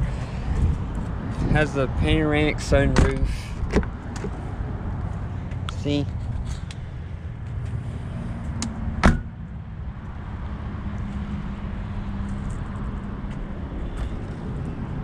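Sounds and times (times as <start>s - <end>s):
car door slamming: 9.0s - 9.3s.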